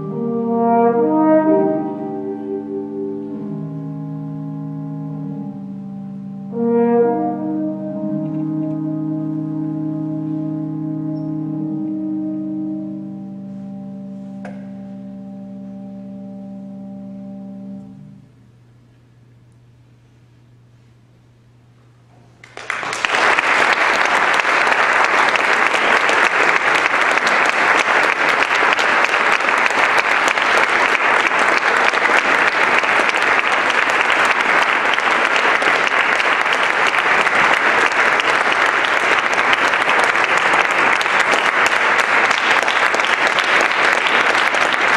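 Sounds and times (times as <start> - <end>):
faint low hum: 1.6 - 42.4
audience applause: 22.4 - 44.9.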